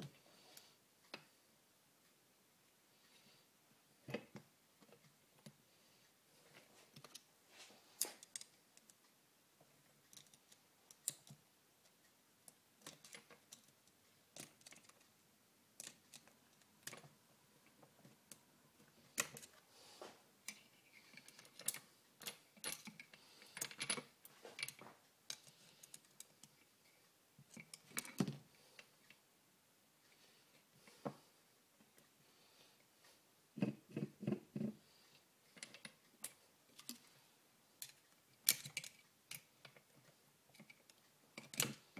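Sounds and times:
small metal clicks and clinks: 0:37.8 - 0:39.8, 0:40.5 - 0:41.9.

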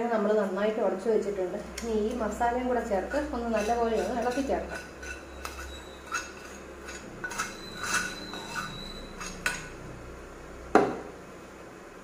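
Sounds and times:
spoon clinking and scraping pan: 0:03.0 - 0:09.8.

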